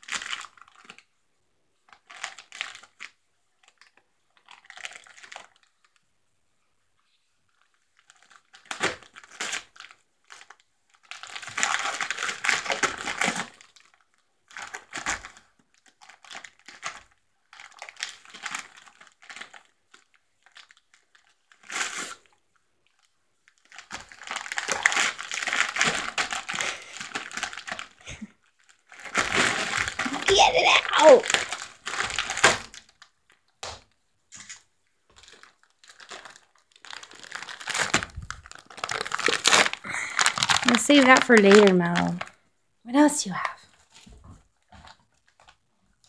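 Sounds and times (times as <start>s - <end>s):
dog tearing wrapping paper: 0.0s - 1.0s, 1.9s - 5.7s, 8.0s - 22.3s, 22.9s - 33.2s, 35.2s - 42.3s.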